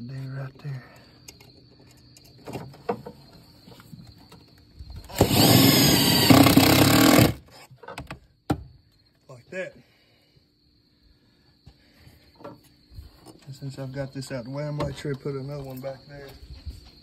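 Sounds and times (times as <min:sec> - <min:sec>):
cordless driver driving screw: 0:05.1 - 0:07.4.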